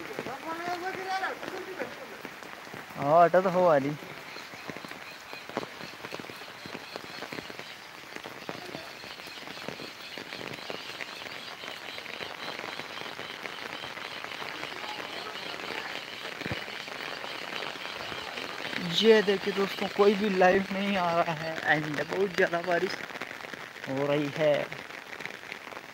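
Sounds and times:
heavy rain on an umbrella: 0:00.0 - 0:25.9.

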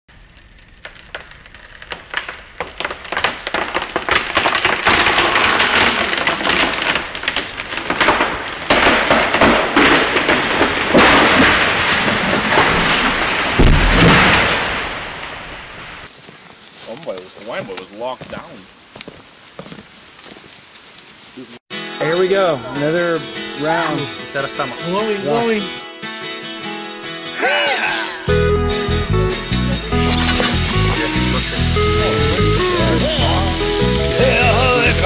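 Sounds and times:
heavy rain: 0:29.7 - 0:35.0.

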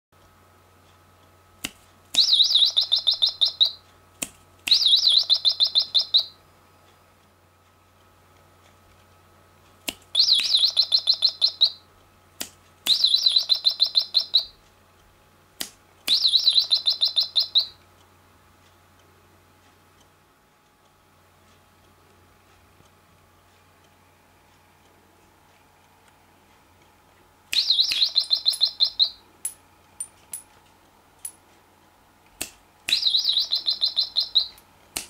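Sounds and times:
finger snaps: 0:01.6 - 0:02.3, 0:04.2 - 0:04.9, 0:09.8 - 0:10.6, 0:12.4 - 0:13.0, 0:15.6 - 0:16.3, 0:27.5 - 0:28.6, 0:32.3 - 0:33.1, 0:34.5 - 0:35.0
electronic toy bird tweeting: 0:02.2 - 0:03.8, 0:04.7 - 0:06.4, 0:10.1 - 0:11.8, 0:12.9 - 0:14.6, 0:16.1 - 0:17.8, 0:27.6 - 0:29.3, 0:32.9 - 0:34.6.

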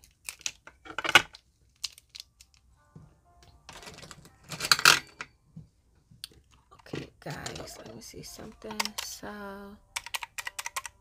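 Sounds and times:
paper and plastic rustling: 0:03.7 - 0:05.2.

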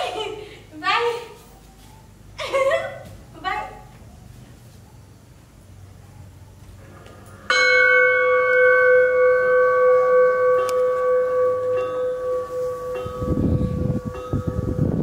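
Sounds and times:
bell ringing: 0:07.5 - 0:14.9.

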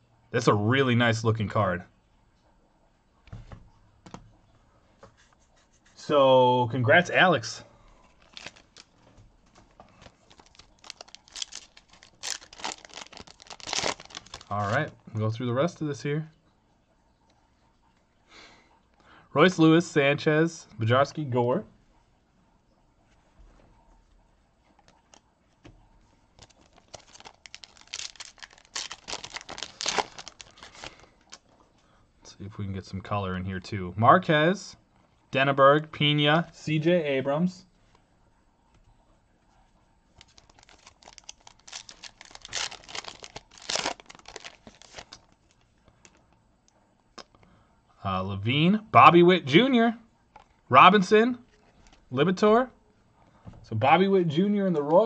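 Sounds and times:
wrapper crinkling and tearing: 0:08.1 - 0:09.0, 0:09.9 - 0:15.0, 0:26.4 - 0:31.5, 0:40.2 - 0:46.2.

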